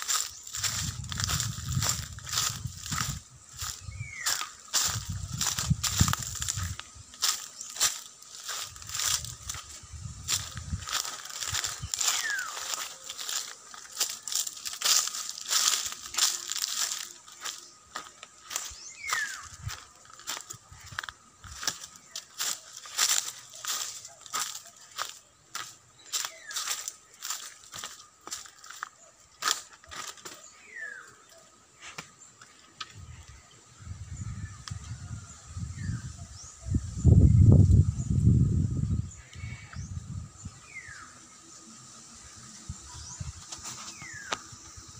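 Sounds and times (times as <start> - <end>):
bird chirps: 0.0 - 9.6, 10.3 - 33.4
footsteps crunching on dry leaves: 0.0 - 31.2, 43.0 - 44.9
wind rumble on microphone: 0.5 - 6.8, 8.7 - 11.8, 32.9 - 40.6.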